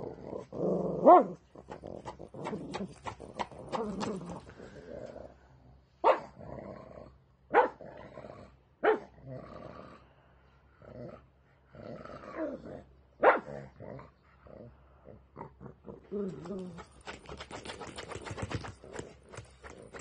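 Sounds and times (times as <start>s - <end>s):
dog growling: 0.0s - 7.2s, 7.8s - 10.1s, 10.8s - 20.0s
dog barking: 6.0s - 6.3s, 7.5s - 7.8s, 8.8s - 9.1s, 13.2s - 13.5s.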